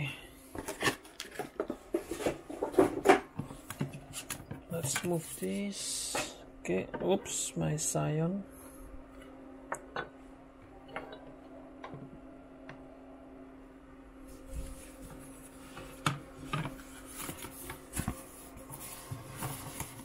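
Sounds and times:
steady low hum: 0.0s - 20.0s
foam and cardboard rustling: 14.3s - 20.0s.

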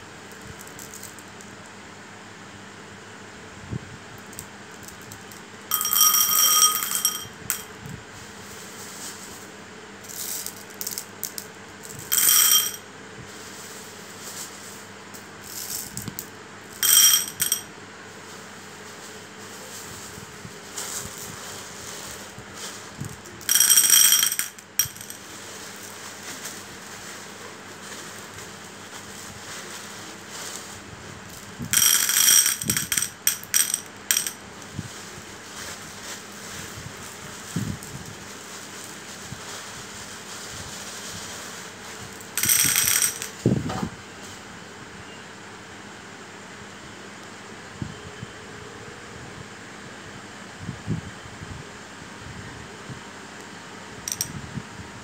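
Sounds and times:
faint steady hum: 0.0s - 55.0s
marbles clinking in ceramic bowl: 4.4s - 7.7s, 10.1s - 12.8s, 16.8s - 17.7s, 23.1s - 25.2s, 31.3s - 34.4s, 42.3s - 43.4s, 54.1s - 54.3s.

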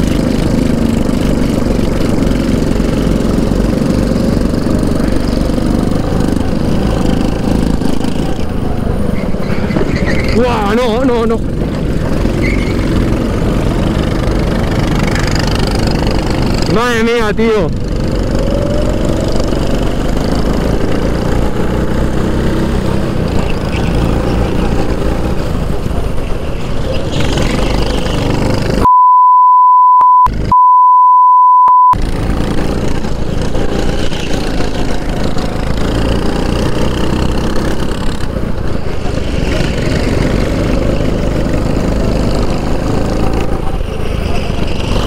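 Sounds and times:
go-kart engine revving: 0.0s - 28.9s, 30.3s - 30.6s, 32.0s - 45.0s
high beep: 28.9s - 32.0s.

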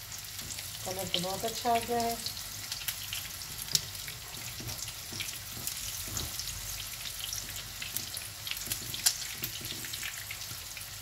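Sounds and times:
chops sizzling in hot oil: 0.0s - 11.0s.

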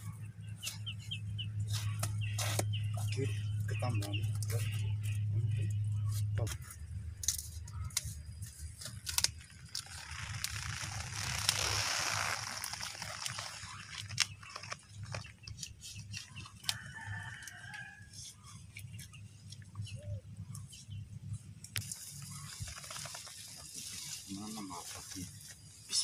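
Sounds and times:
plastic sack rustling and crackling: 8.9s - 15.6s, 21.9s - 25.4s
rooster crowing: 16.6s - 18.2s.

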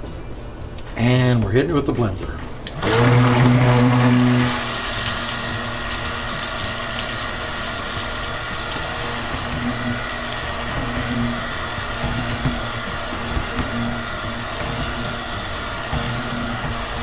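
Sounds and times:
stick blender humming: 2.6s - 17.0s.

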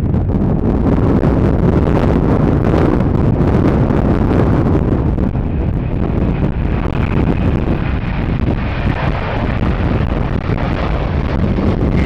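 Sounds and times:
jet engines roaring: 0.0s - 12.0s.

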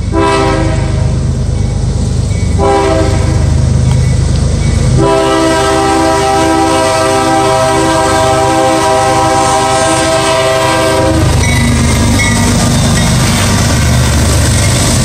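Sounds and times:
locomotive engine and wheels rumbling: 0.0s - 15.0s
locomotive air horn blast: 0.1s - 1.1s, 2.6s - 3.5s, 4.9s - 11.7s.

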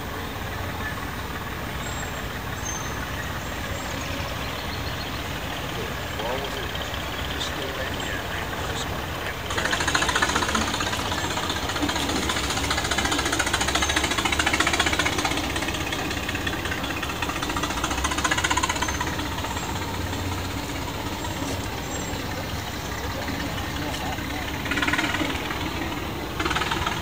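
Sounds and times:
truck engine clattering: 0.0s - 27.0s.

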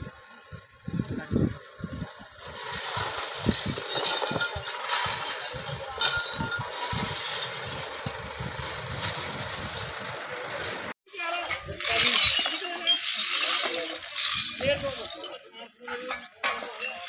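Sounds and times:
truck engines driving past: 0.0s - 11.0s
shovel scraping glass on asphalt: 2.4s - 17.0s.

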